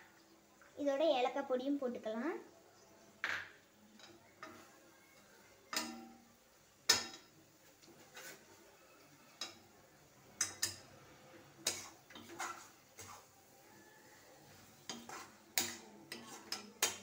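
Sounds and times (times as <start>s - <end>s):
metal spoon scraping metal pan: 11.6s - 13.4s, 14.5s - 17.0s.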